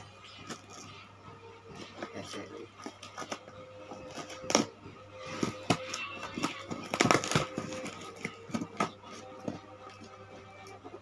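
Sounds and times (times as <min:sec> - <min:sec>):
cardboard rustling: 0:01.7 - 0:11.0
packing tape ripping: 0:05.4 - 0:09.3.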